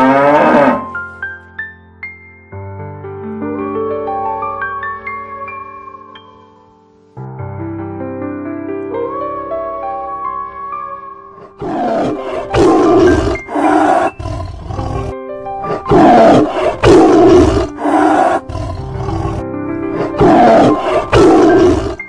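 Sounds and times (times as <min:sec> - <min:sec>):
lion roaring: 0:00.0 - 0:00.9, 0:11.4 - 0:22.0
soft background music: 0:00.0 - 0:22.0.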